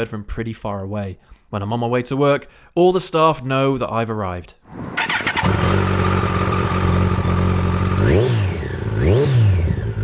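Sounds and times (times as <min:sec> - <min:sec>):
motorcycle engine idling and revving: 0:05.0 - 0:10.0.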